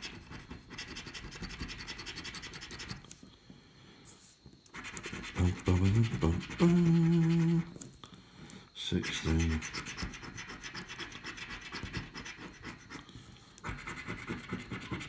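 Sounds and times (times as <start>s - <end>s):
scratching scratchcard coating: 0.0s - 3.1s, 4.7s - 7.8s, 8.9s - 15.0s
man humming low notes: 5.4s - 7.7s.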